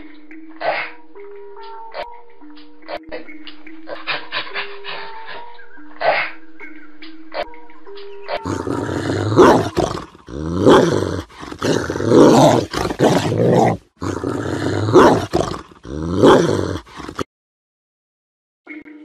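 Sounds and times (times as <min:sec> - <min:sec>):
dog growling: 0:08.3 - 0:17.3.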